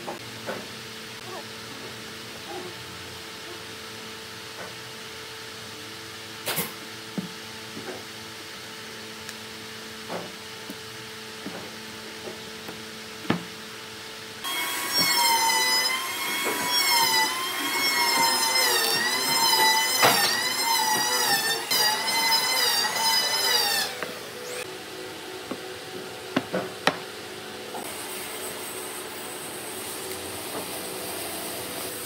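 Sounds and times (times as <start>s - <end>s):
power tool motor whine: 14.4s - 25.7s.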